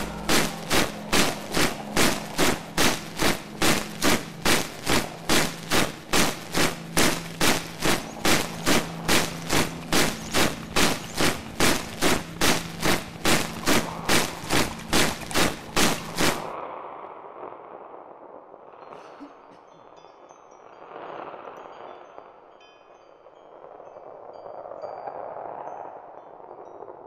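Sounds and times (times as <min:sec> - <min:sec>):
rhythmic sharp hits: 0:00.0 - 0:16.5
low hum: 0:00.0 - 0:18.3.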